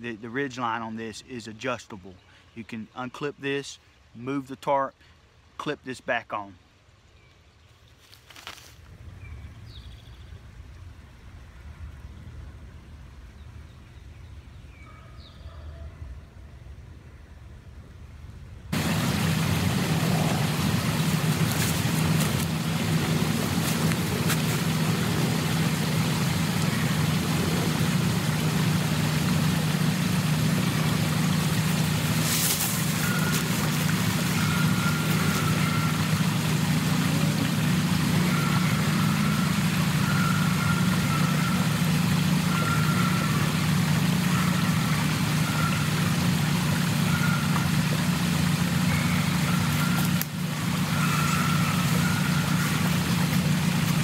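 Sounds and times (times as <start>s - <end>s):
low mechanical hum: 6.7s - 54.0s.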